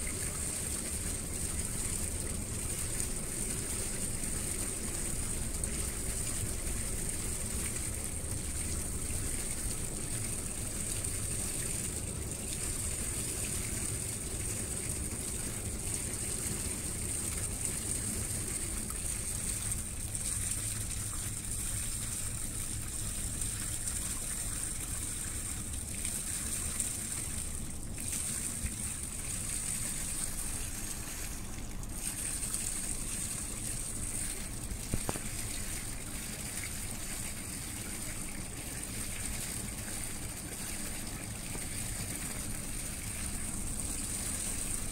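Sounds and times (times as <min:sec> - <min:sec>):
water rushing and gushing: 0:00.0 - 0:44.9.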